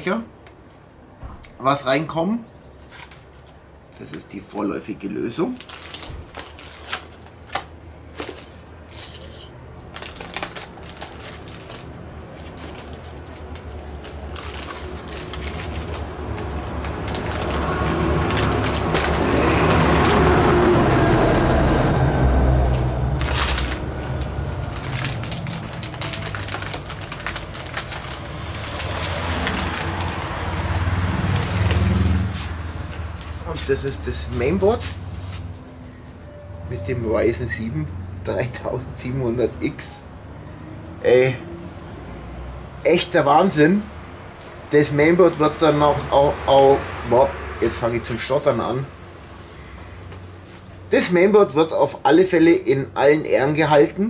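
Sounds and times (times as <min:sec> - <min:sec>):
bubble wrap crinkling: 0:05.4 - 0:35.6
low engine drone: 0:09.9 - 0:33.6
low rumble: 0:14.4 - 0:31.7.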